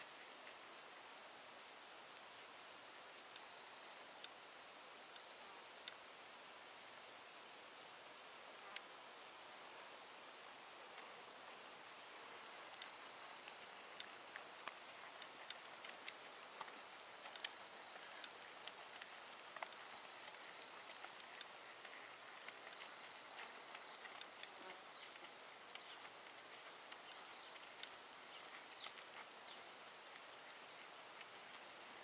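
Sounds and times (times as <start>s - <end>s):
steady hiss: 0.0s - 32.0s
hoofbeats on loose dirt: 12.3s - 31.8s.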